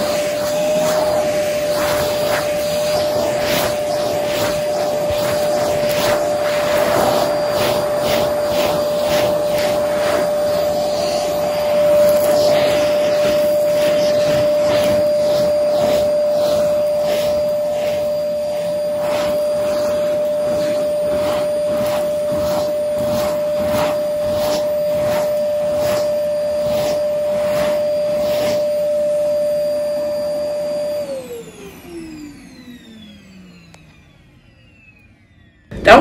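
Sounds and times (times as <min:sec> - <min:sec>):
grit being sucked up: 0:00.0 - 0:28.6
nozzle pushed over carpet: 0:00.0 - 0:32.7
vacuum cleaner whine: 0:00.0 - 0:36.0.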